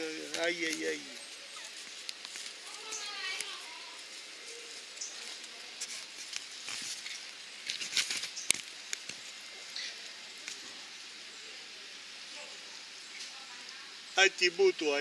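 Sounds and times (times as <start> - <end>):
rustling in dry leaves: 0.0 - 15.0.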